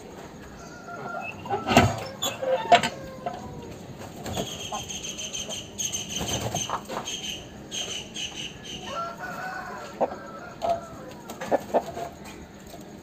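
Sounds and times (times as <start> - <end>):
rooster crowing: 0.6 - 3.8, 8.8 - 11.5
sharp clucks: 4.0 - 9.0.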